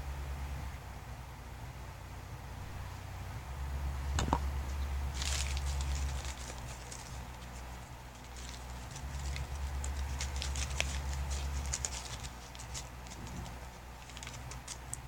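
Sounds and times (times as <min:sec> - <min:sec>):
steady low hum: 0:00.0 - 0:15.0
sheet rustling and crinkling: 0:05.1 - 0:15.0.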